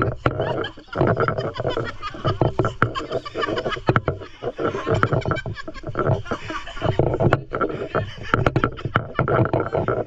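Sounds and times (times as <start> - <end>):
people laughing and chattering: 0.0 - 10.0.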